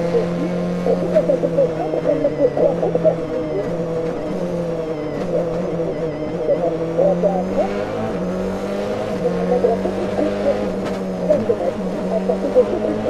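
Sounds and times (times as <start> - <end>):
race car engine at high revs: 0.0 - 13.0.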